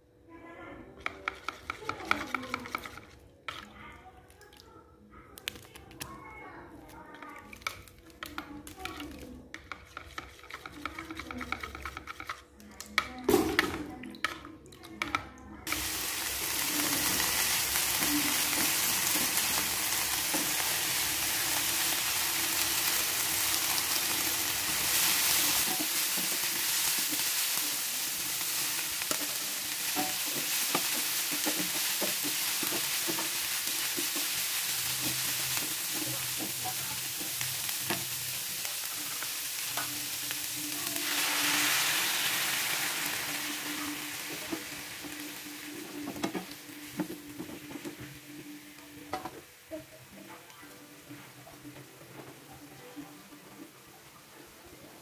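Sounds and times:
wooden spatula scraping: 8.3 - 12.6
food sizzling in a wok: 15.7 - 52.3.

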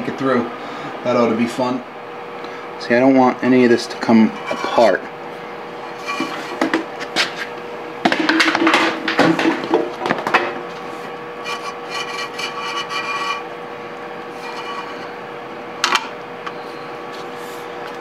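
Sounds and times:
wires rubbing with light rattle: 4.2 - 5.0, 5.8 - 7.5, 11.4 - 13.5, 14.3 - 15.1
wires scraping against metal box: 4.3 - 5.0, 5.8 - 6.6, 11.4 - 13.5, 14.3 - 15.2.

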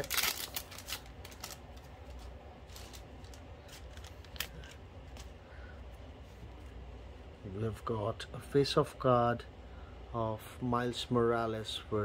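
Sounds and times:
card pack wrapper crinkling: 0.0 - 5.4.

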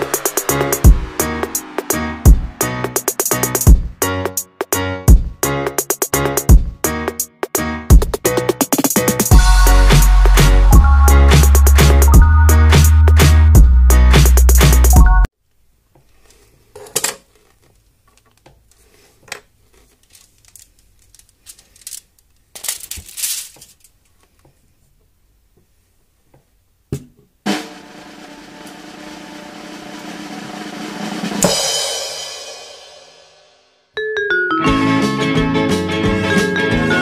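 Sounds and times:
cymbal swell into crash: 0.0 - 4.2, 27.5 - 33.6
faint clicks and rustles: 15.5 - 26.5.

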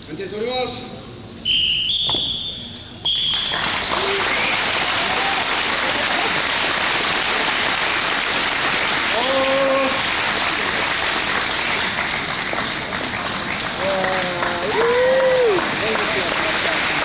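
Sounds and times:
crowd noise in a hall: 0.8 - 17.0.

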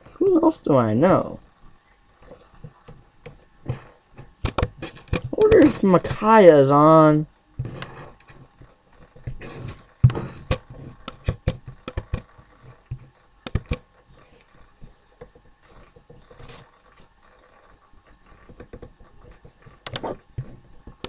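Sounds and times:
keyboard and mouse clicks: 2.2 - 5.8, 7.7 - 13.9, 18.3 - 21.0.

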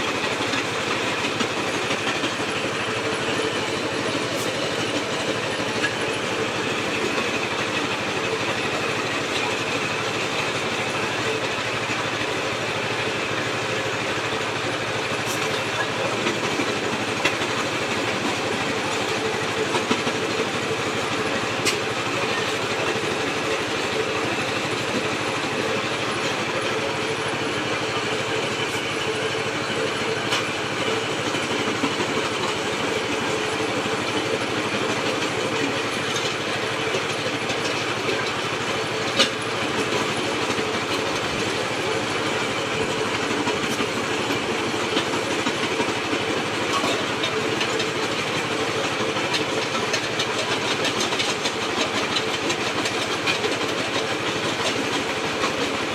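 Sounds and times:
brick-crushing machine running: 22.4 - 55.9.

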